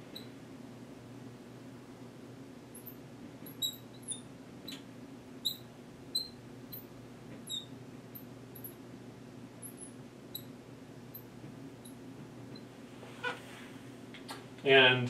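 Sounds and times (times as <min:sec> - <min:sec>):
low steady hum: 0:00.0 - 0:15.0
marker squeaking on glass: 0:00.1 - 0:00.3, 0:02.8 - 0:08.8, 0:09.6 - 0:10.5, 0:11.8 - 0:13.4.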